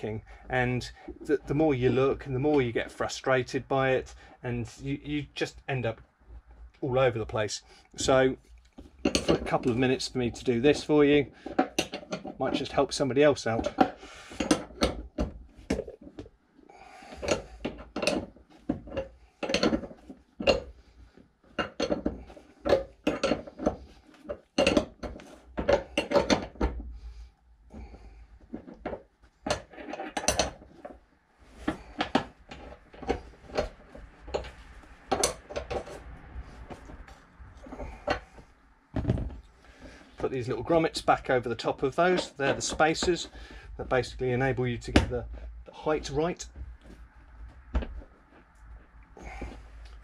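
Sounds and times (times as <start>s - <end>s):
metal bolts and spanner clinking: 21.6s - 23.8s, 24.6s - 26.7s, 28.6s - 30.6s.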